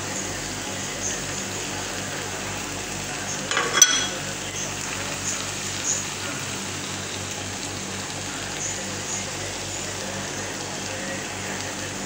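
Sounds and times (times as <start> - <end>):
stew sizzling in a pan: 0.0 - 12.0
ringing clink of kitchenware: 3.5 - 4.2
kitchenware clattering: 3.5 - 4.3.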